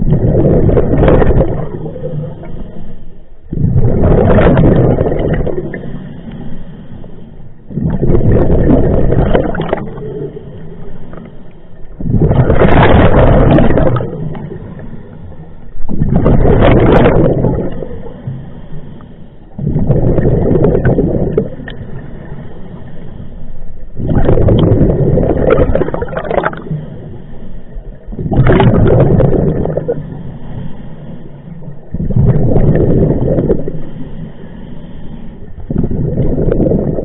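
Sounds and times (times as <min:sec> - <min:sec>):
diver exhaling bubbles underwater: 0:00.0 - 0:02.5, 0:03.5 - 0:06.0, 0:07.7 - 0:10.4, 0:12.0 - 0:14.8, 0:15.8 - 0:18.1, 0:19.6 - 0:21.8, 0:24.0 - 0:26.8, 0:28.1 - 0:30.0, 0:31.9 - 0:33.8, 0:35.7 - 0:37.0.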